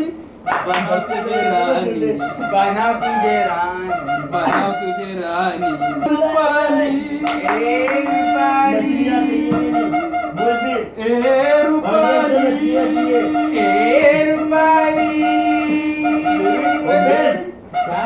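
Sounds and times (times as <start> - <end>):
men singing low held note: 6.0 - 10.3, 11.1 - 17.6.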